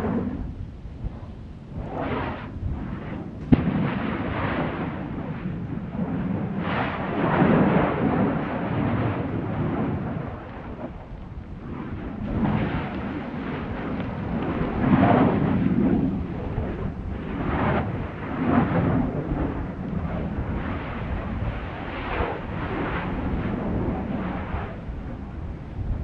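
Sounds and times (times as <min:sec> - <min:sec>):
volcanic vents erupting: 0:00.0 - 0:26.0
sharp crack: 0:03.4 - 0:04.9.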